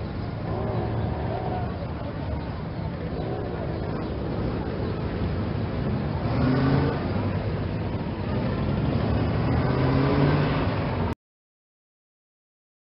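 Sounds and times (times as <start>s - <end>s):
road traffic rumble: 0.0s - 11.2s
vehicles passing: 0.0s - 11.2s.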